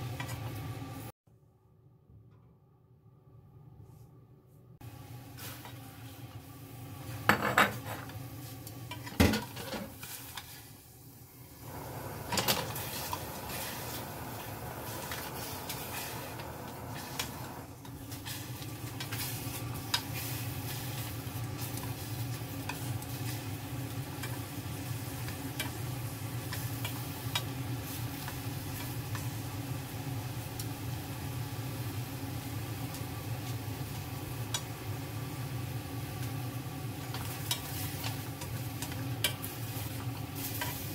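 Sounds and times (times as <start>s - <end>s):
pot and utensils clattering: 7.3s - 8.2s, 8.9s - 10.0s
pot simmering: 8.0s - 40.9s.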